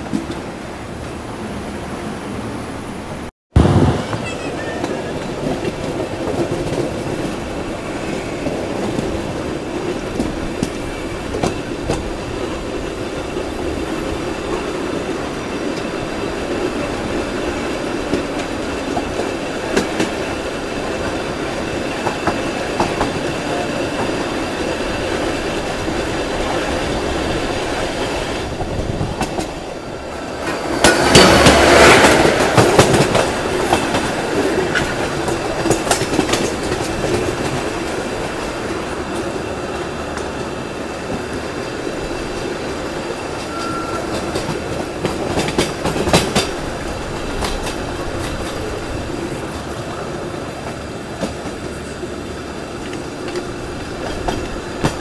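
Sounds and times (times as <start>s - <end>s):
train passing alongside: 0.0s - 55.0s
train wheels clattering: 4.2s - 55.0s.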